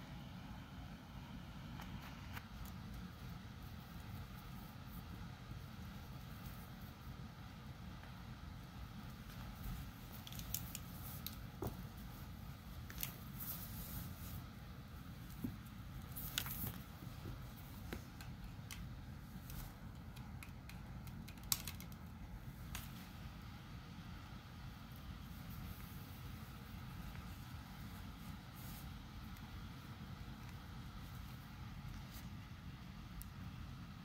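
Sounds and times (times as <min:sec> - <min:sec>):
plastic clicks and scratches: 0:19.9 - 0:22.1.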